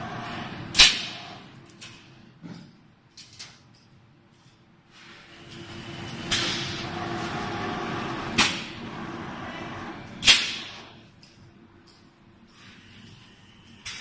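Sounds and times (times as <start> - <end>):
machine humming: 5.3 - 11.2.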